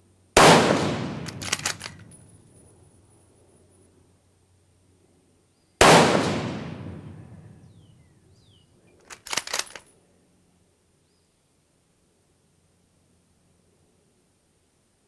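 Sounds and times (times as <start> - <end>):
rifle shot echoing: 0.4 - 2.2, 5.8 - 7.8
metallic clicks of rifle bolt: 1.0 - 2.7, 8.9 - 10.0.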